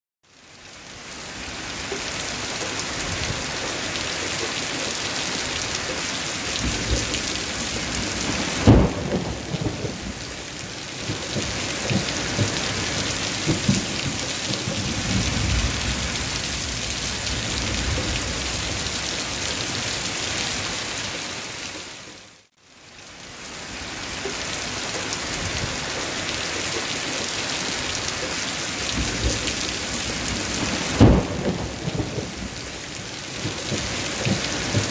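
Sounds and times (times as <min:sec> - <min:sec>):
steady rain hissing: 0:00.3 - 0:34.9
sharp thunderclap: 0:06.6 - 0:10.2, 0:28.9 - 0:32.6
low rolling thunder: 0:06.6 - 0:20.0, 0:28.8 - 0:34.9.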